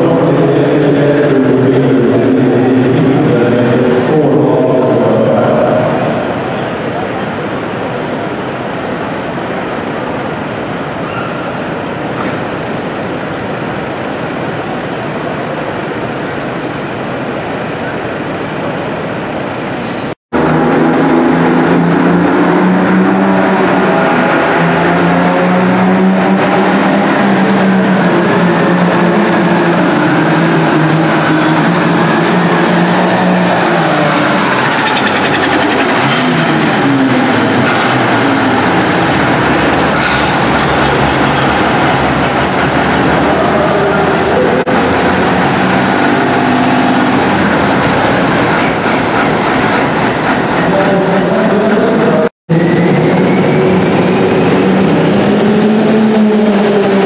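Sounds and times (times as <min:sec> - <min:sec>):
pulling tractor engine at full power: 0:20.4 - 0:57.0
quieter tractor engine: 0:30.0 - 0:52.2.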